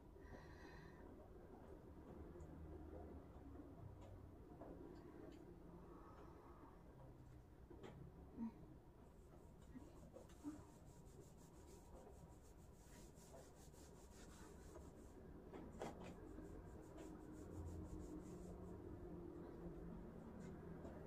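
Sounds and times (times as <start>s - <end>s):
faint rustling and rubbing: 9.0s - 21.0s.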